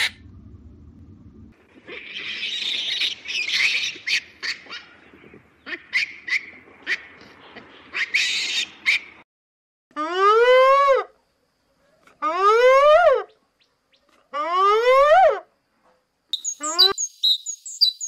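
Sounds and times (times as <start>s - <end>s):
monkeys screeching: 1.9s - 4.8s.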